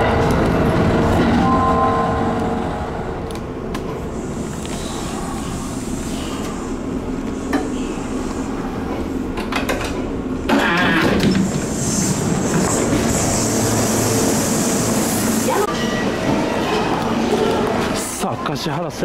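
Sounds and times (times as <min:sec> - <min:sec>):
train doors opening rush: 0:00.0 - 0:18.7
train interior rumble: 0:00.0 - 0:19.0.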